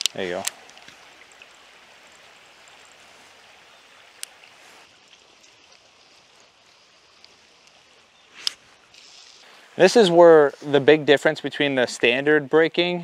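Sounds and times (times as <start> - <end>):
stream water rushing: 0.0 - 12.2.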